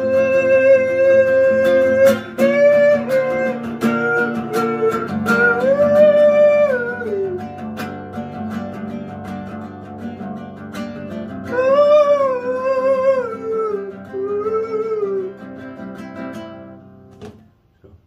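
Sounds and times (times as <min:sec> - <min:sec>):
man singing wordless melody: 0:00.0 - 0:07.8, 0:11.3 - 0:15.6
classical guitar picked chords: 0:00.0 - 0:18.0.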